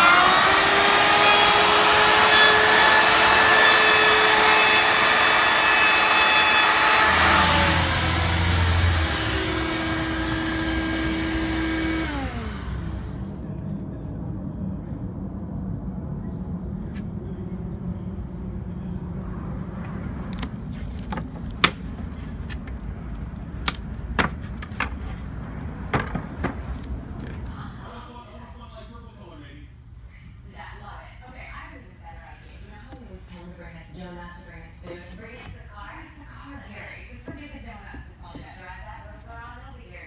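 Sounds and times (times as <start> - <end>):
wood router spinning down: 0.0 - 13.3
low steady rumble: 0.0 - 40.0.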